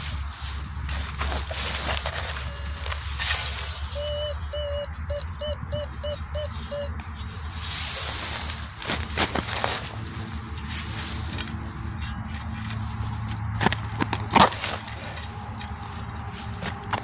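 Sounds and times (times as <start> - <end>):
dry grass rustling: 0.0 - 17.0
metal detector beeping: 1.4 - 8.5
iron being handled: 7.2 - 17.0.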